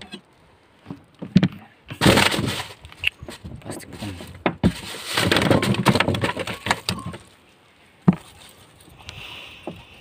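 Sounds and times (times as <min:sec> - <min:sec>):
styrofoam crackling and rustling: 0:02.0 - 0:07.3.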